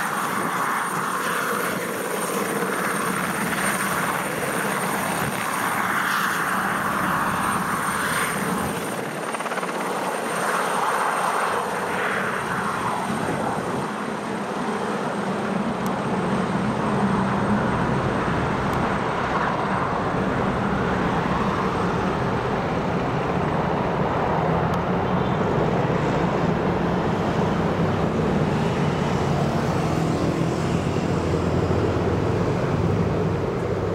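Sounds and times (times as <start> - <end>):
helicopter rotor and turbine: 0.0 - 33.9
high turbine whine: 0.0 - 33.9.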